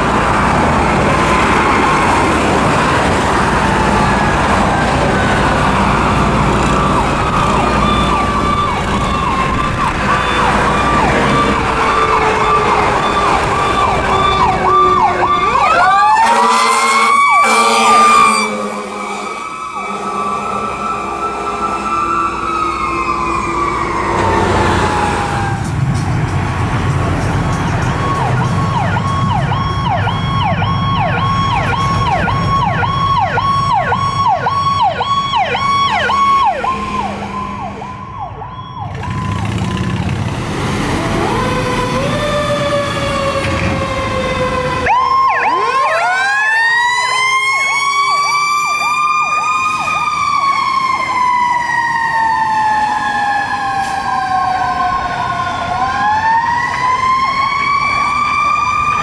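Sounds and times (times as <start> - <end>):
wailing siren: 0.0 - 59.0
fast yelping siren: 2.8 - 25.7, 27.9 - 39.8, 41.0 - 59.0
second siren tone yelping: 6.8 - 25.7.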